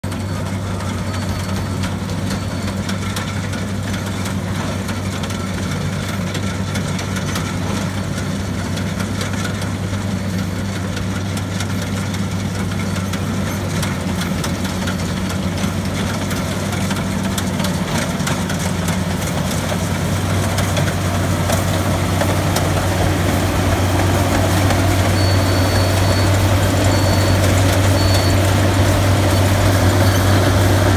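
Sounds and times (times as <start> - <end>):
combine harvester engine humming: 0.0 - 30.9
short high beeps: 21.6 - 30.9.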